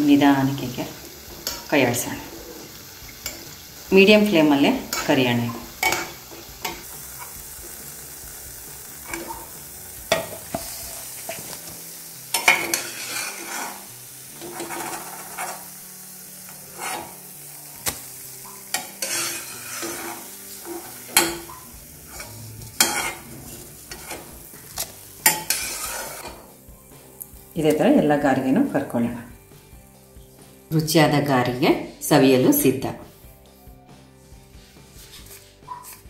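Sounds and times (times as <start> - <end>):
oil sizzling: 0.0 - 36.0
metal spoon scraping a pan: 1.4 - 3.7, 4.8 - 7.5, 9.0 - 11.7, 12.3 - 15.8, 16.4 - 26.5, 34.9 - 36.0.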